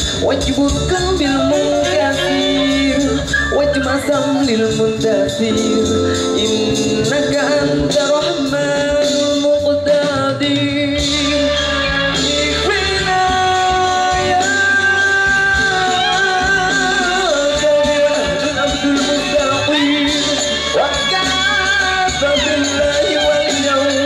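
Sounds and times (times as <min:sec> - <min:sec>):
live band music: 0:00.0 - 0:24.0.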